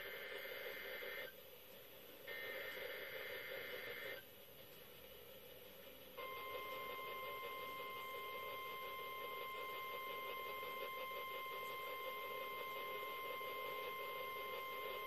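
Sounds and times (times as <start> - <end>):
radio static hiss: 0.0 - 1.4, 2.1 - 4.3.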